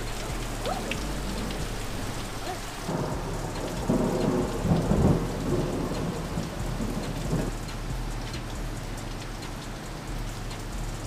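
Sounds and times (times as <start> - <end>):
heavy rain pouring: 0.0 - 11.0
thunder rumbling: 0.0 - 11.0.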